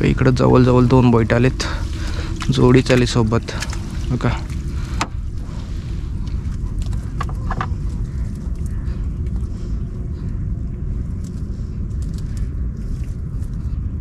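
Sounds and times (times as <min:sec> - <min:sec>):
wind buffeting microphone: 0:00.0 - 0:14.0
wet net rustling: 0:01.5 - 0:08.8.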